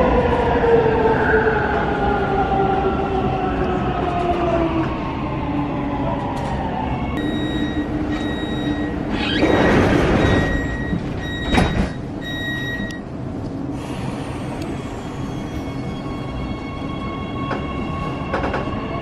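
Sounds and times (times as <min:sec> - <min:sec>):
train hum: 0:00.0 - 0:19.0
electronic warning beep: 0:07.2 - 0:13.0
sliding doors rushing: 0:08.3 - 0:12.1.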